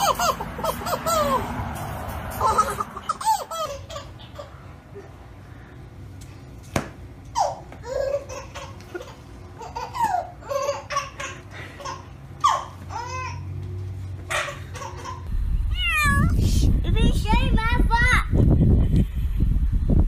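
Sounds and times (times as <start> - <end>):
baby laughing: 0.0 - 5.1, 7.3 - 13.6, 14.3 - 15.3.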